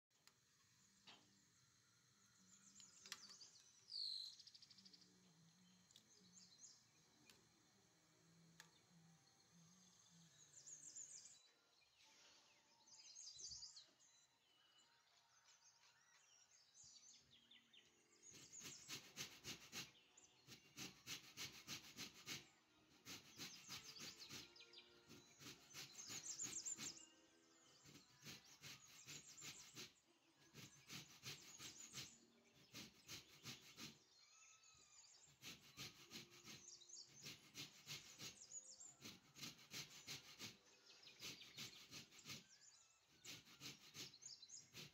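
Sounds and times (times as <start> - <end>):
peel rasping on metal grater: 18.4 - 19.9, 20.5 - 27.0, 27.9 - 34.0, 35.3 - 40.6, 41.2 - 42.4, 43.2 - 44.9.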